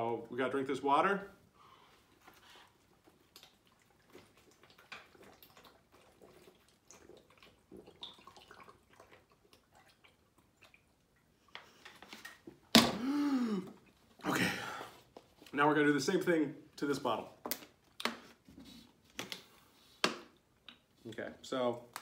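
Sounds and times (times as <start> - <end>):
person gulping water: 12.7 - 15.1.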